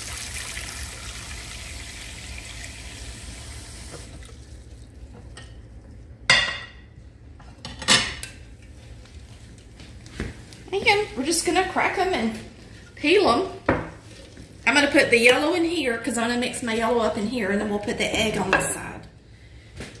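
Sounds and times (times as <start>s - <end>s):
tap water running into pot: 0.0s - 5.8s.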